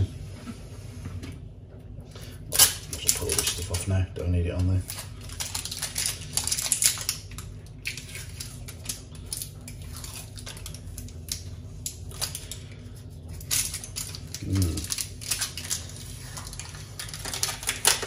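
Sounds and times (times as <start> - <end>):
plastic film peeling crackles: 4.6 - 18.0.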